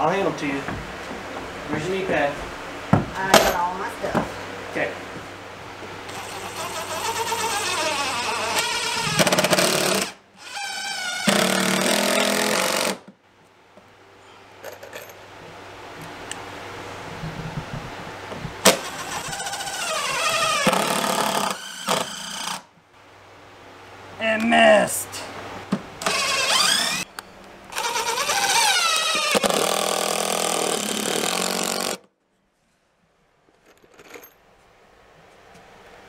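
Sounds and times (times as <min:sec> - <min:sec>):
impact driver driving screws: 0:06.1 - 0:13.0, 0:18.7 - 0:22.6, 0:26.0 - 0:27.1, 0:27.7 - 0:32.1.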